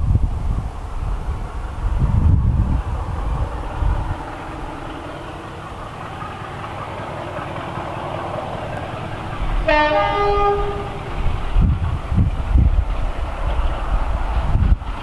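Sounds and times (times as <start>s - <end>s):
diesel locomotive engine: 0.0s - 15.0s
wind buffeting microphone: 0.0s - 15.0s
two-tone train horn: 9.6s - 11.2s.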